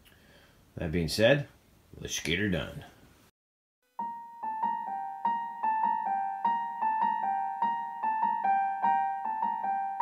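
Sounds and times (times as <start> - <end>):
piano-like keyboard notes: 4.0 - 10.0.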